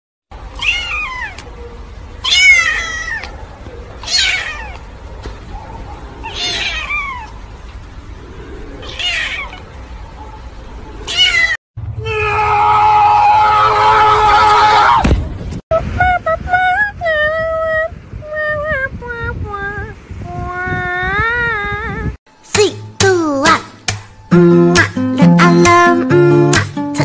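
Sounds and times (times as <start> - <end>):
kitten meowing: 0.6 - 1.5, 2.2 - 3.3, 4.0 - 4.9, 6.2 - 7.3, 8.8 - 9.6, 11.1 - 11.6.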